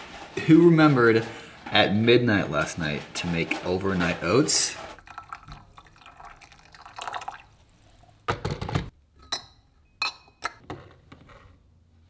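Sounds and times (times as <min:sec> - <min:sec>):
water pouring into teapot: 0:05.0 - 0:08.2.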